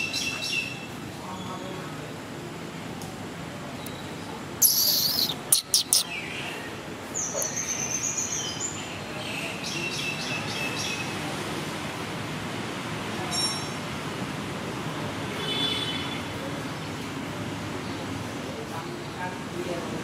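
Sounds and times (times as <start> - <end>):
birds chirping rapidly: 4.0 - 11.2
bird high falling call: 4.6 - 6.1.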